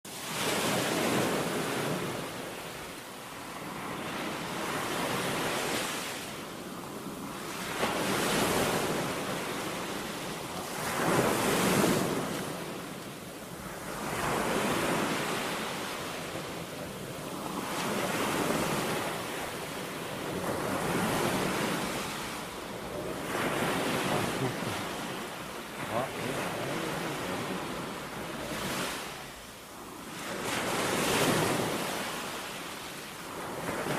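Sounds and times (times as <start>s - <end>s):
ocean surf breaking: 0.1s - 33.9s.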